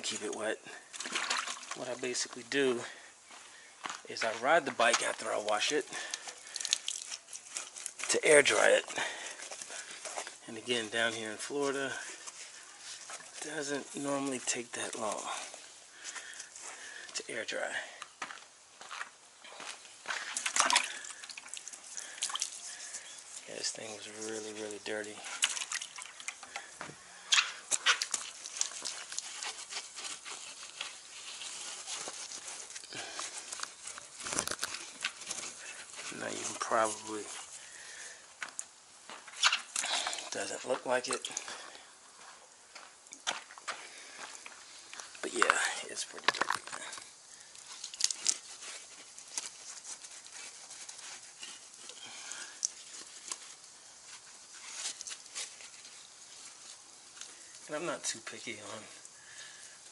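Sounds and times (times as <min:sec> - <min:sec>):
wet sponge scrubbing bike: 0:20.2 - 0:26.6, 0:27.2 - 0:38.0, 0:46.8 - 0:58.8.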